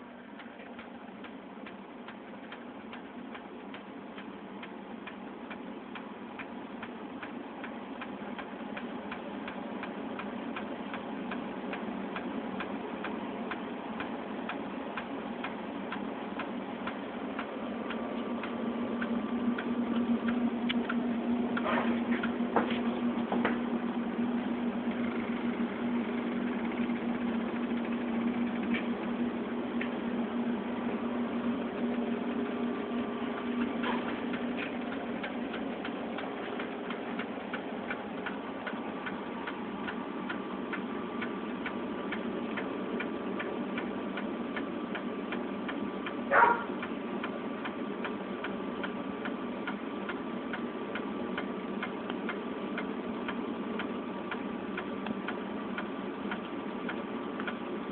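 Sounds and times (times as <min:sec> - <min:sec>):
fast regular ticking: 0:00.4 - 0:30.1, 0:31.0 - 0:57.8
low hum: 0:15.3 - 0:44.6.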